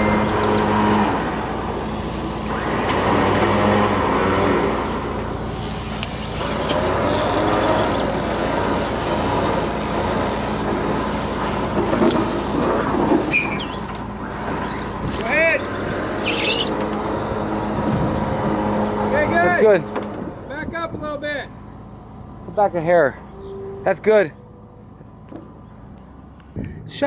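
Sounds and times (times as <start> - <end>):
truck engine running: 0.0 - 27.0.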